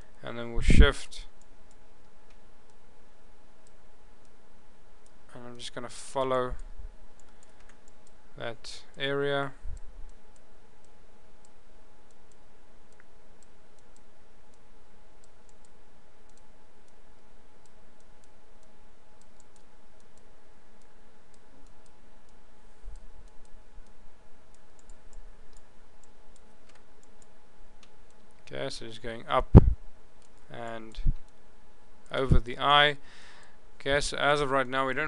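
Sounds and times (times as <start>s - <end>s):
background hum: 0.0s - 35.0s
computer mouse clicks: 6.6s - 8.2s, 15.2s - 17.0s, 17.6s - 28.5s
soft low thumps: 29.4s - 29.8s.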